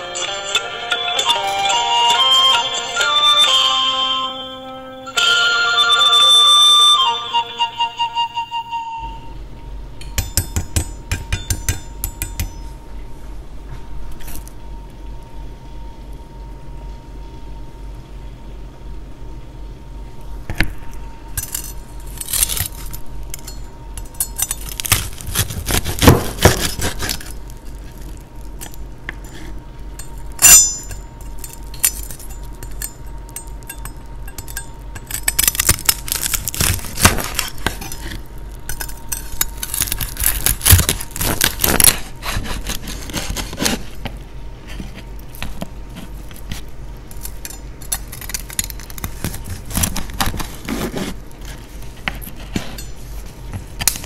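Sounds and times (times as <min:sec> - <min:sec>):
crisp pork skin crunching: 0:21.4 - 0:30.5, 0:34.8 - 0:44.0, 0:45.0 - 0:52.6.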